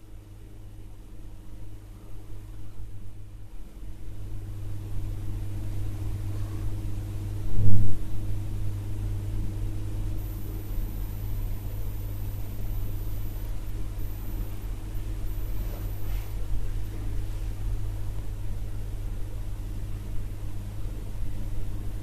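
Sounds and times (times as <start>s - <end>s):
steady low hum: 0.0s - 22.0s
brief low thump: 7.6s - 8.0s
constant higher tones: 10.0s - 17.1s
light hiss: 10.2s - 17.5s.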